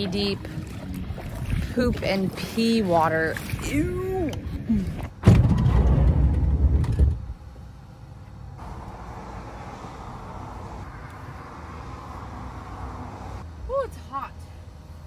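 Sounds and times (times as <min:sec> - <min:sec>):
wind buffeting microphone: 0:00.0 - 0:04.9.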